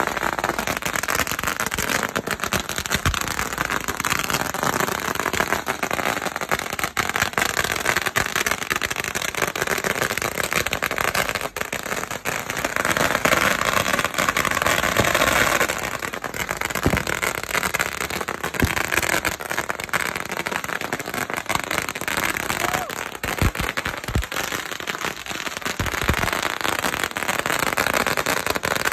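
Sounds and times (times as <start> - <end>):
firecrackers crackling: 0.0 - 28.9
sharp firecracker bangs: 16.7 - 19.4, 22.6 - 24.6, 25.7 - 26.5.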